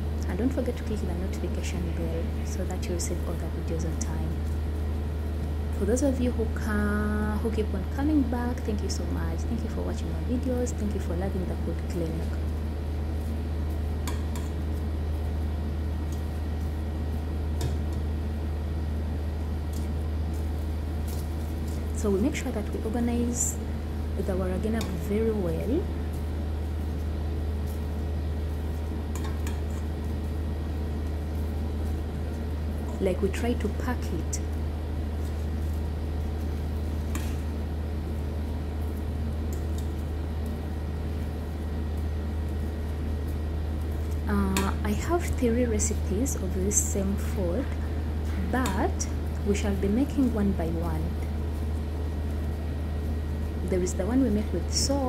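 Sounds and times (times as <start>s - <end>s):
low hum: 0.0s - 55.0s.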